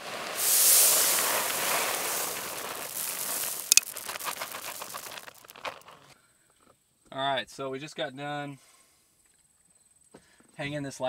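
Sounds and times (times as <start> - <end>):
corn kernels pouring onto grass: 0.0 - 6.1.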